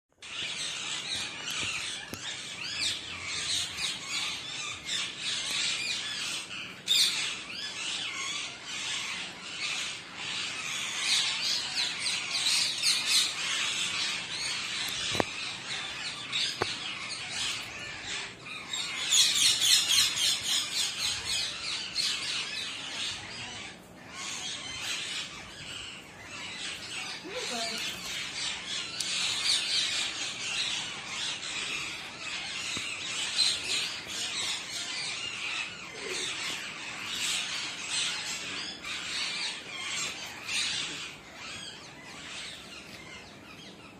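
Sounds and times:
parakeet squawking and chirping: 0:00.2 - 0:43.9.

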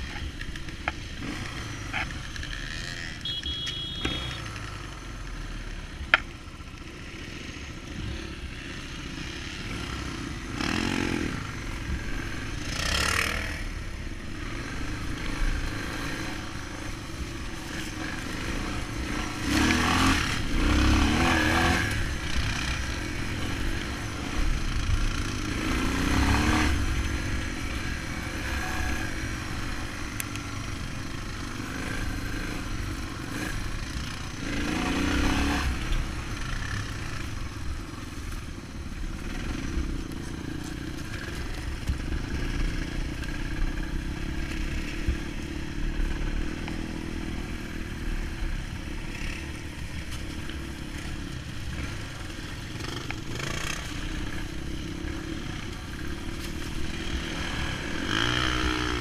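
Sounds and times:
dirt bike engine revving: 0:00.6 - 0:04.7, 0:07.0 - 0:30.1, 0:31.1 - 0:37.3, 0:50.9 - 0:59.0.

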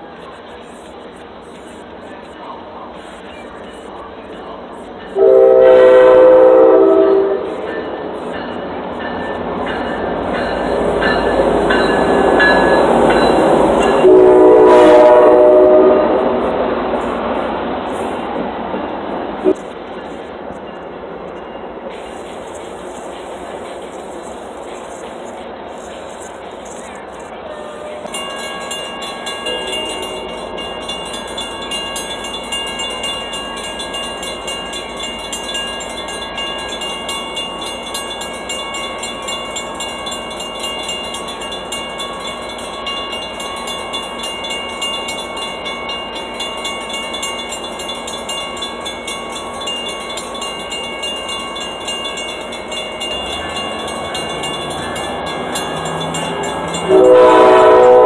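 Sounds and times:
train rumble: 0:00.0 - 0:58.0
railroad warning bell ringing: 0:03.1 - 0:16.6, 0:18.8 - 0:24.8, 0:25.8 - 0:58.0
train horn blowing: 0:05.2 - 0:07.7, 0:14.0 - 0:16.4, 0:27.4 - 0:28.2, 0:56.9 - 0:58.0.

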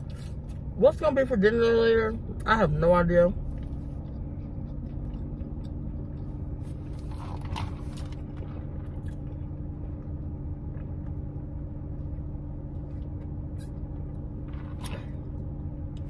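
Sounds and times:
car idling hum: 0:00.0 - 0:16.0.

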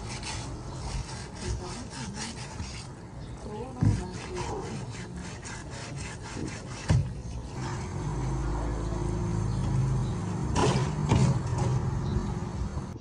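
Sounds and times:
short rasping scrapes: 0:00.0 - 0:02.9, 0:03.7 - 0:08.0
low motor-like hum: 0:07.3 - 0:13.0.

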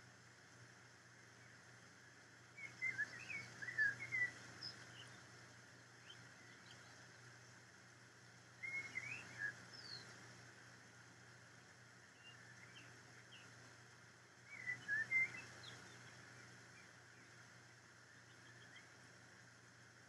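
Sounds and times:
faint steady hiss: 0:00.0 - 0:20.0
songbird warbling chirps: 0:02.4 - 0:07.7, 0:08.4 - 0:11.3, 0:12.0 - 0:19.6.

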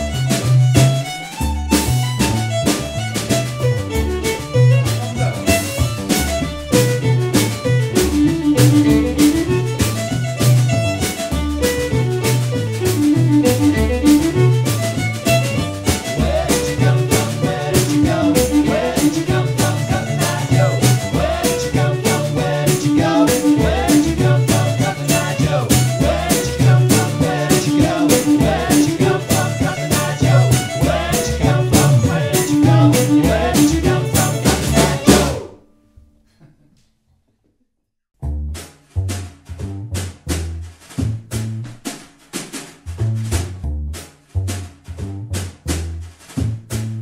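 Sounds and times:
bowed fiddle melody: 0:00.0 - 0:35.5
plucked bass line: 0:00.0 - 0:35.5, 0:38.2 - 0:41.9, 0:42.8 - 0:47.0
steady drum beat: 0:00.0 - 0:35.5, 0:38.6 - 0:47.0.

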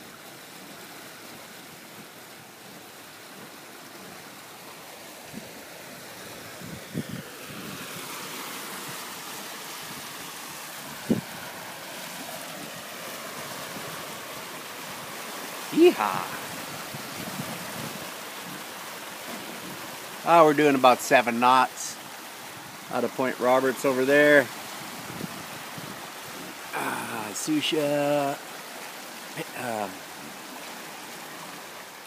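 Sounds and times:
water rushing along a hull: 0:00.0 - 0:32.0
wind on microphone: 0:06.3 - 0:09.1, 0:10.8 - 0:11.6, 0:15.9 - 0:18.6, 0:24.6 - 0:26.7.

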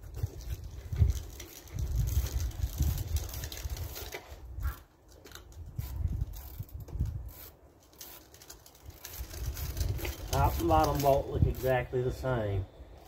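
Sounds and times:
wind rumble on microphone: 0:00.0 - 0:07.4, 0:08.8 - 0:11.8.

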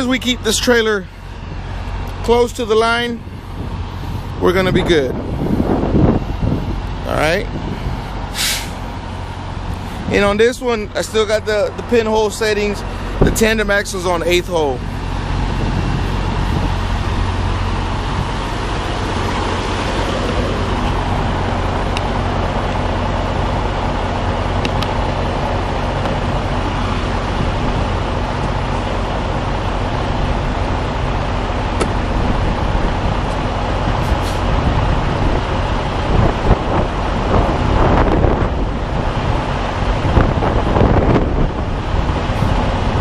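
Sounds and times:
diesel truck engine running: 0:00.0 - 0:43.0.

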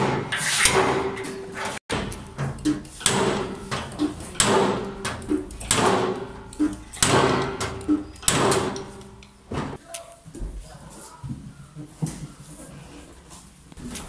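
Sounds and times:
dent puller hitting steel panel: 0:00.0 - 0:09.3.

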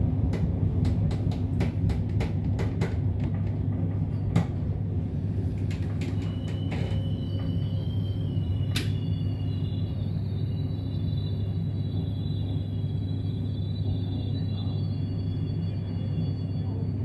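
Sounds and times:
train running gear rumble: 0:00.0 - 0:17.0
high squealing brakes: 0:05.9 - 0:17.0.

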